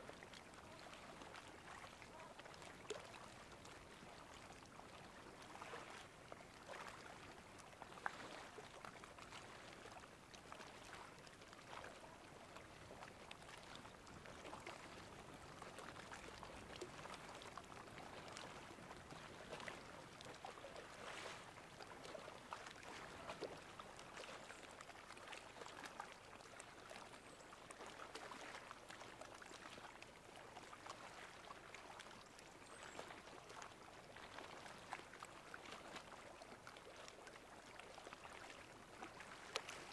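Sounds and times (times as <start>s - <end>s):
seawater lapping and trickling: 0.0s - 39.9s.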